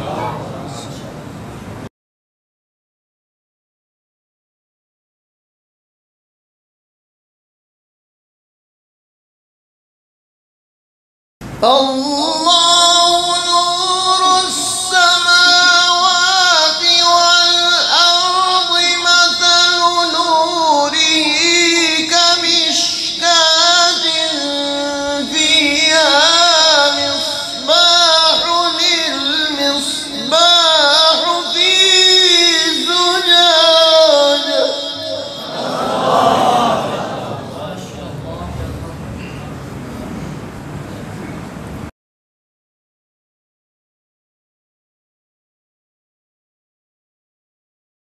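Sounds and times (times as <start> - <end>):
man reciting melodically: 11.6 - 39.4.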